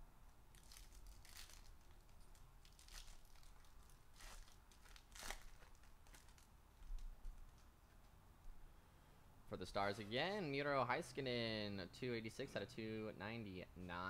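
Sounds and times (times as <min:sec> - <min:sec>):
foil pack ripping and crinkling: 0:00.5 - 0:07.0.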